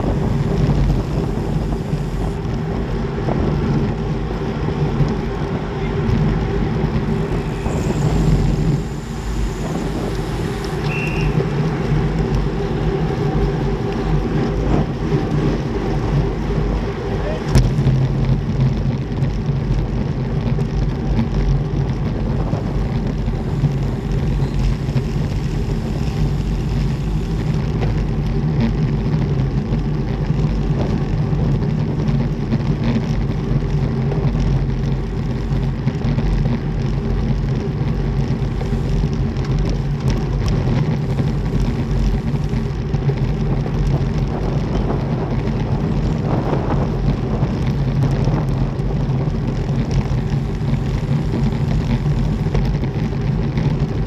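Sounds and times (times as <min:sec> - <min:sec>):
bike tyres rumbling on brick paving: 0:00.0 - 0:54.0
wind rushing over microphone: 0:00.0 - 0:54.0.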